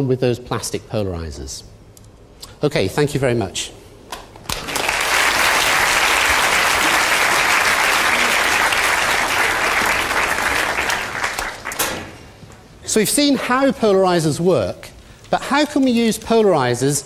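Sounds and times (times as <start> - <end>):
large audience clapping: 4.4 - 11.9.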